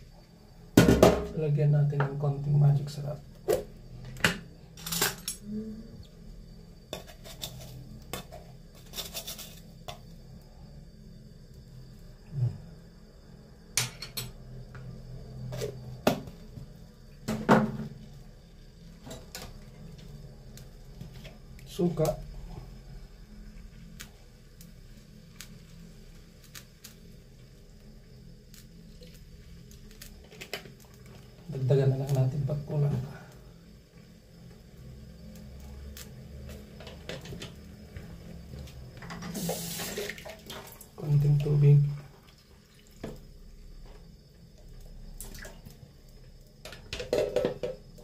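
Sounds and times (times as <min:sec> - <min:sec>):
steady low hum: 0:00.0 - 0:39.1
vinegar trickling into a pot: 0:18.0 - 0:33.4, 0:39.3 - 0:48.0
gas burner rushing: 0:35.0 - 0:40.2.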